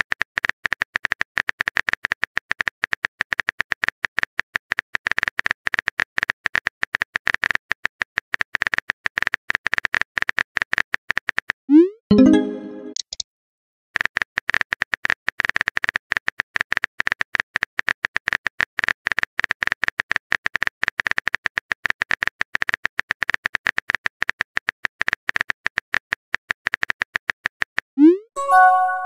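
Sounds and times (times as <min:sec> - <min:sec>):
electronic message-sent tone: 0:11.8 - 0:13.0, 0:28.0 - 0:29.0.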